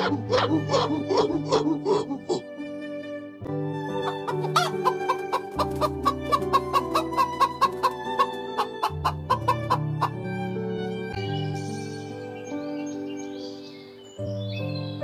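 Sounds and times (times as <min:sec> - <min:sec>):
background music: 0:00.0 - 0:15.0
chickens clucking: 0:04.0 - 0:10.2.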